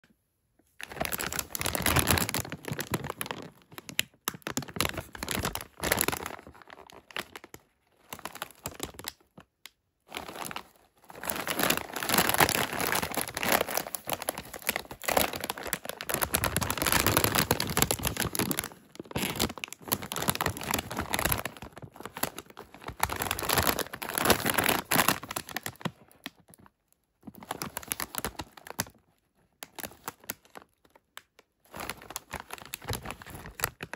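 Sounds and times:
chip bag crinkling: 0.8 - 29.0, 29.6 - 33.9.

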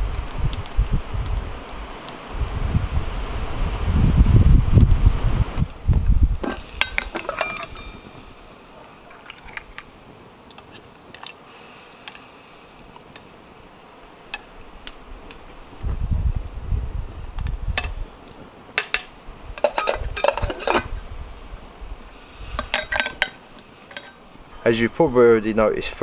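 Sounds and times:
wind rumble on microphone: 0.0 - 8.5, 15.0 - 18.5, 19.2 - 23.3
metal pot and lid clanking: 6.4 - 8.5, 9.1 - 9.9, 18.8 - 21.0, 22.5 - 24.2.

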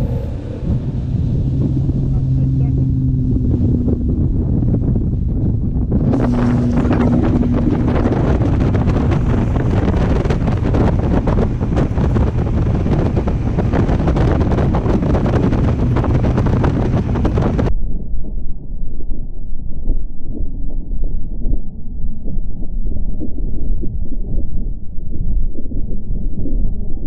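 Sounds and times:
outboard motor at full throttle: 0.0 - 17.7
water rushing past hull: 0.0 - 17.7
wind buffeting microphone: 0.0 - 17.7.

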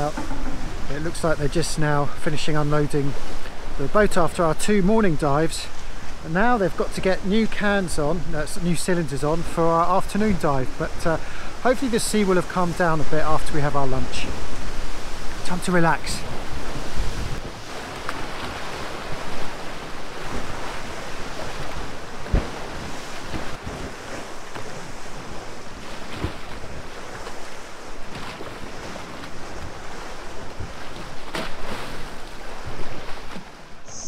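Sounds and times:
wind buffeting microphone: 0.0 - 1.8, 14.0 - 31.2
sea splashing against jetty: 0.0 - 4.5, 9.3 - 34.0.

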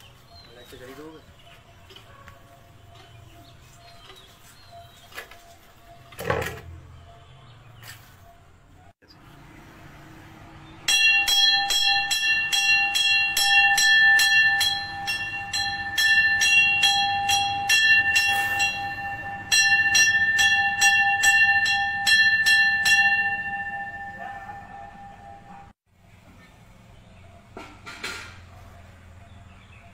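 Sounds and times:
sustained bell ringing tone: 10.5 - 25.8
temple bell struck rapidly: 10.9 - 25.7.

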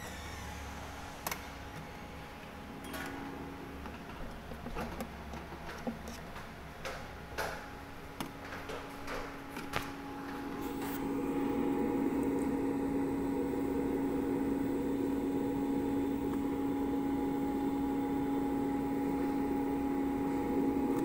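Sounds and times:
ice maker humming: 10.0 - 21.0.

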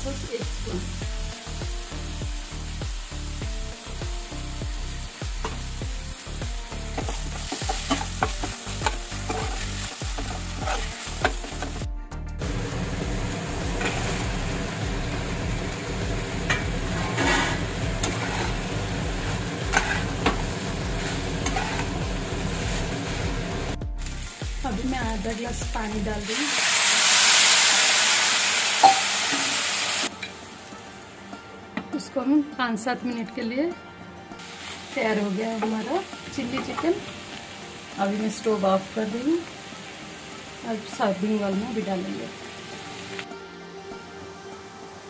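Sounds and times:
food sizzling in a pan: 0.0 - 31.6, 34.3 - 43.4
spatula scraping a pan: 7.0 - 11.7, 16.5 - 22.8.

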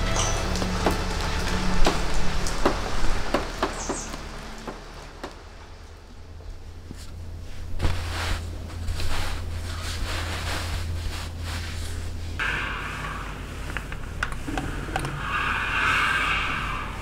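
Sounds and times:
steady low hum: 0.0 - 17.0
hands rustling fabric: 6.4 - 12.4.

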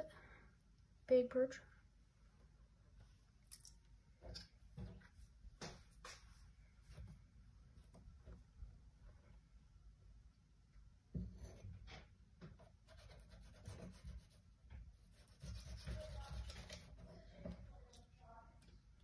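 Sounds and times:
knife scraping and slicing fish: 15.2 - 16.9.

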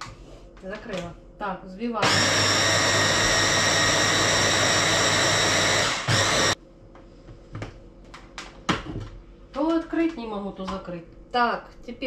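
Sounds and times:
electric hand blender running: 2.0 - 6.6.

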